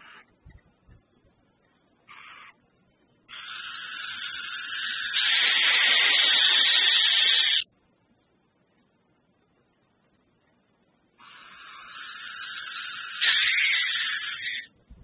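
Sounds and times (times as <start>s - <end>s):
owl hissing rasp: 0.0s - 0.3s, 2.1s - 2.6s, 3.3s - 7.7s, 11.2s - 14.7s.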